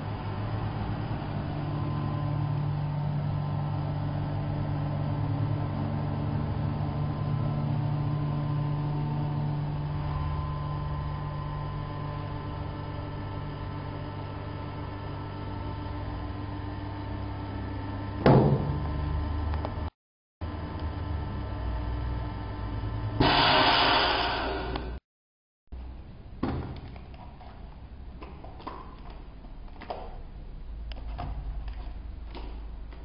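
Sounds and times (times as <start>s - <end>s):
vacuum pump humming: 0.0s - 25.0s
short loud burst: 23.2s - 25.0s.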